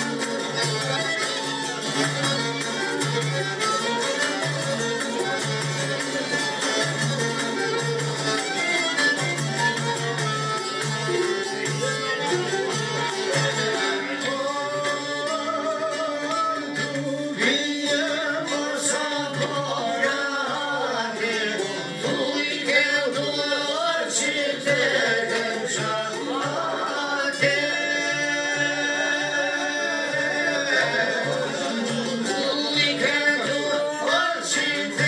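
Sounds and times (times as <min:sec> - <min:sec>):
accordion: 0:00.0 - 0:35.0
violin: 0:00.0 - 0:35.0
man singing: 0:13.7 - 0:35.0.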